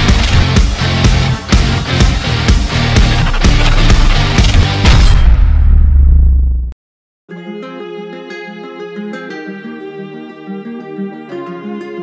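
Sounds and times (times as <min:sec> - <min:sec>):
loud music with strong beat: 0:00.0 - 0:05.1.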